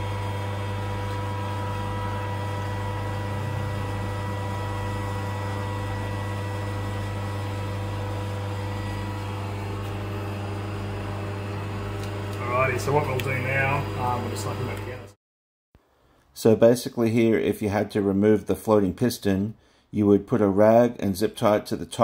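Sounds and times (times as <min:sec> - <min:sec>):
machine electric hum: 0:00.0 - 0:15.2.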